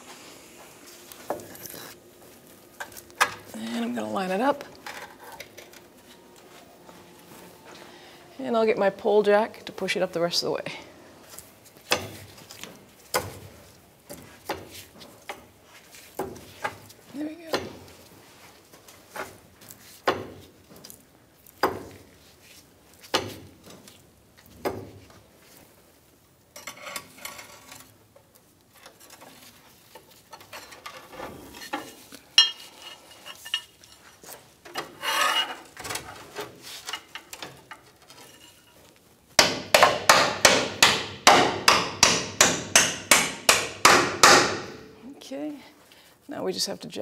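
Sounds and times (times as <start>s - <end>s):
metal parts scraping and clinking: 30.1s - 39.0s
sharp metallic knocks: 39.4s - 44.8s.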